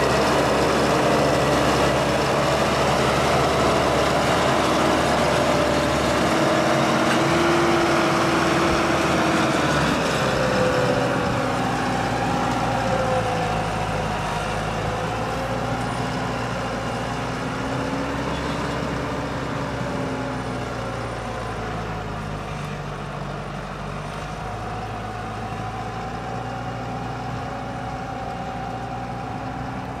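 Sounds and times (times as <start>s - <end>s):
tractor diesel engine under load: 0.0s - 30.0s.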